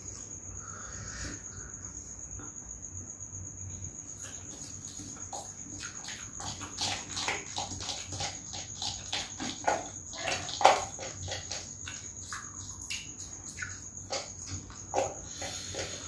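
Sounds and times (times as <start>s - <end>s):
people chewing and slurping noodles: 4.0s - 16.0s.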